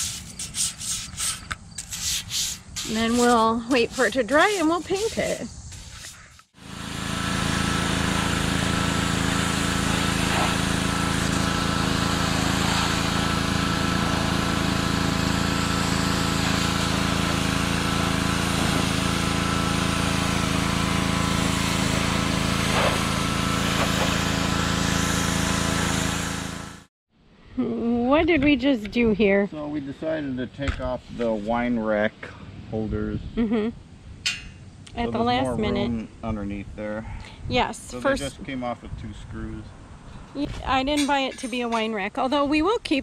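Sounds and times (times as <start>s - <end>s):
water jet hissing on metal: 0.0s - 6.4s, 7.8s - 26.8s
pressure washer motor hum: 6.6s - 26.9s.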